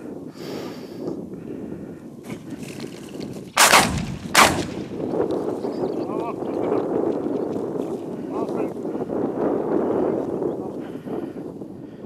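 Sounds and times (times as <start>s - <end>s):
shotgun shots: 3.6s - 5.1s.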